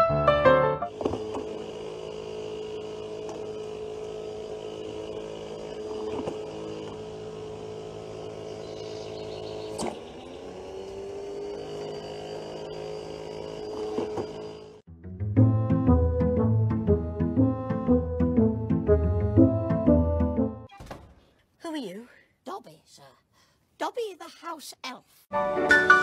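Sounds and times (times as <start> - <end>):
ball launcher motor humming: 0.7 - 14.9.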